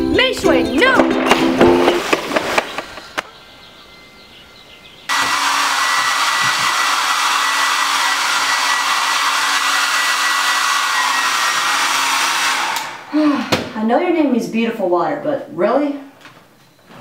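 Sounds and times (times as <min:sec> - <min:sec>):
hair dryer blowing: 0:05.1 - 0:13.1.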